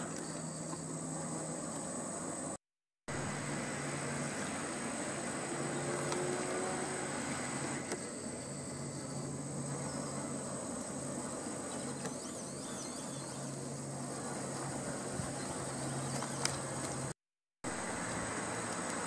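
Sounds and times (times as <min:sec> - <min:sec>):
faint high chirps: 0:00.0 - 0:02.4, 0:07.9 - 0:10.5
high-pitched insect drone: 0:00.0 - 0:02.6, 0:03.2 - 0:16.1.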